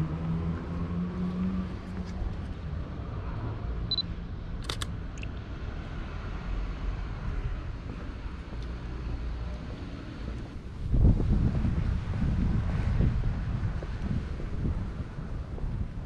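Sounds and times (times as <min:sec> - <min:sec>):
city traffic hum: 0:00.0 - 0:16.0
camera focus beep: 0:03.9 - 0:05.3
camera shutter double click: 0:04.6 - 0:05.3.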